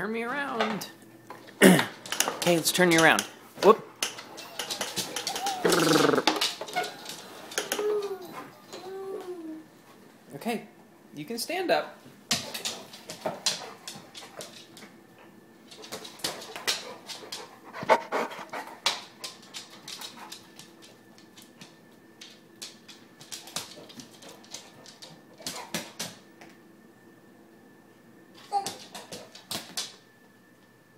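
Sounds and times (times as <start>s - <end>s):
dog panting: 12.6s - 20.6s.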